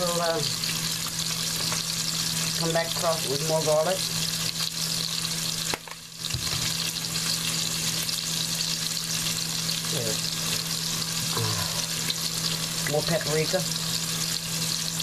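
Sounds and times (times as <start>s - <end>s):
meat sizzling in hot oil: 0.0s - 15.0s
steady low hum: 10.2s - 12.9s.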